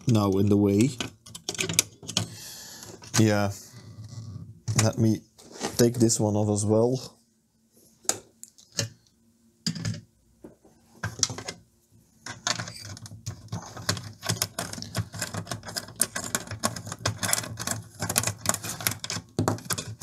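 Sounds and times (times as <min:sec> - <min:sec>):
plastic and metal parts clicking: 0:00.9 - 0:02.3, 0:12.2 - 0:20.0.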